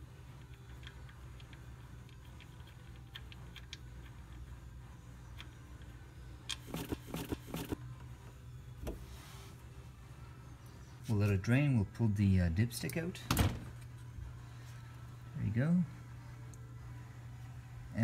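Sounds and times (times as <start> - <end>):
low hum: 13.6 - 18.0.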